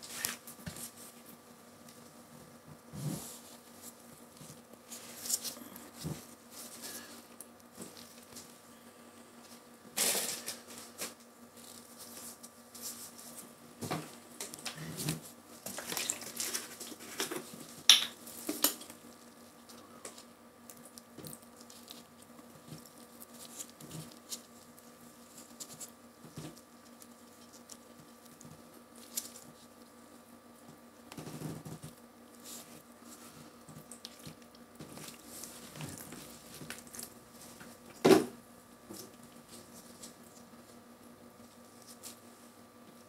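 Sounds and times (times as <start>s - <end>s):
faint steady hum: 0.0s - 43.0s
packaging crinkling and rustling: 14.4s - 29.8s.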